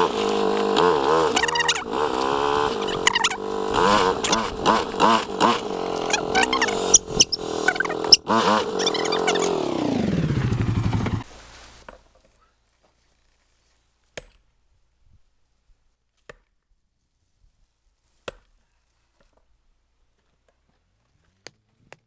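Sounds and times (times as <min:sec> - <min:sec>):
atv engine running: 0:00.0 - 0:11.4.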